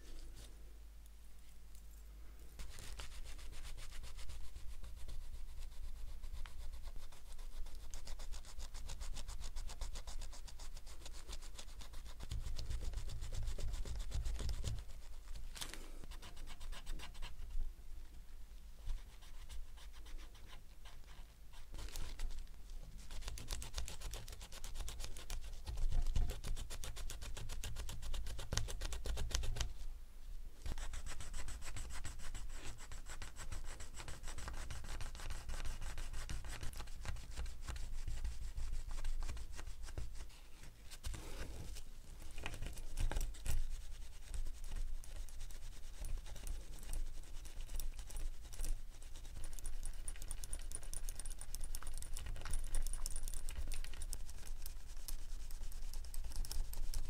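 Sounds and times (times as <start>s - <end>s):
rubbing strokes on metal: 54.1s - 57.0s.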